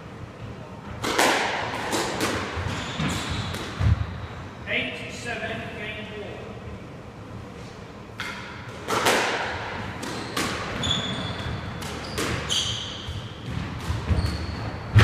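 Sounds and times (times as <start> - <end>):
squash ball hitting rackets and walls: 0.9 - 4.2, 8.2 - 15.0
shoes squeaking on wooden floor: 10.1 - 13.3, 14.1 - 14.9.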